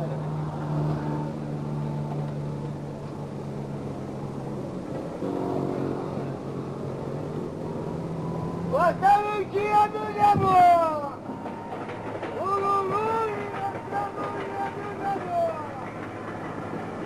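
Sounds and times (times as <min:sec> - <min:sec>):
engine low hum: 0:00.0 - 0:09.0.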